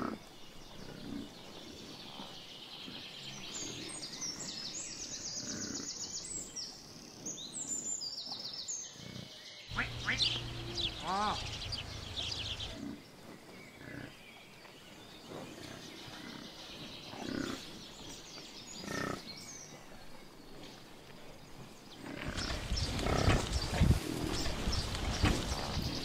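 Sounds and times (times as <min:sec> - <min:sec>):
water buffaloes grunting: 0:08.9 - 0:14.4, 0:15.4 - 0:18.0, 0:18.8 - 0:19.6, 0:22.0 - 0:26.0.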